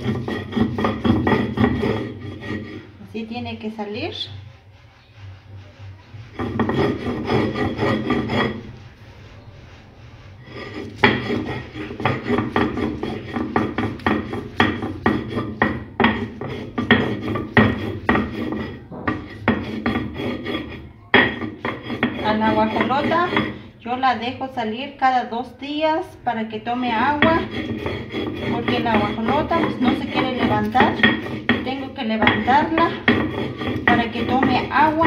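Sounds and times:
stone grinding corn: 0:00.0 - 0:24.1, 0:26.7 - 0:35.0.

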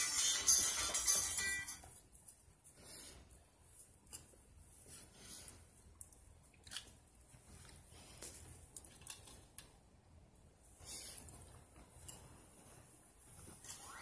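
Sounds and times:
faint clicks and rustles: 0:00.4 - 0:14.0.

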